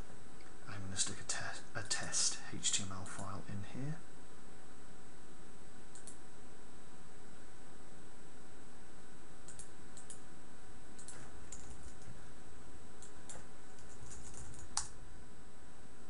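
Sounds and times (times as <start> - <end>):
computer mouse clicks: 5.9 - 6.2, 9.4 - 10.2, 11.0 - 12.1, 13.0 - 15.0
keyboard keys clicking: 11.0 - 12.1, 13.0 - 14.9.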